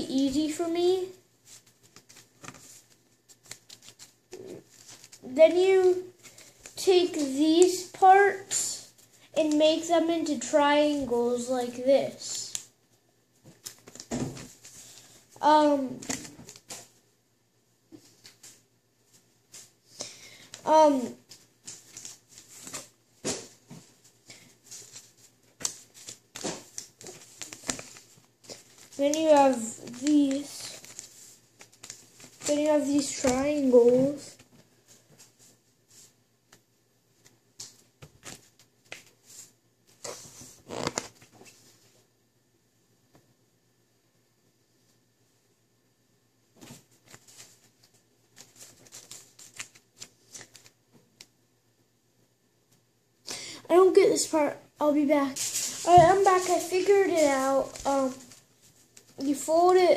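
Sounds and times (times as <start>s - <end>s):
paper rustling and creasing: 0.1s - 12.7s, 13.4s - 15.1s, 20.5s - 36.2s, 37.2s - 42.0s, 46.6s - 50.8s, 54.1s - 59.5s.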